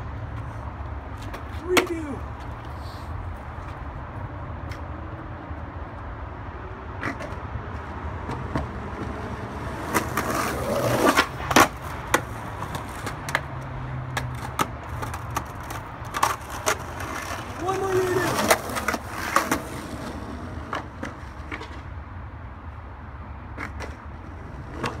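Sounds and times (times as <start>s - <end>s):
skateboard wheels rolling on asphalt: 0.0s - 25.0s
skateboard clacking on ground: 1.1s - 2.7s, 7.0s - 21.9s, 23.5s - 25.0s.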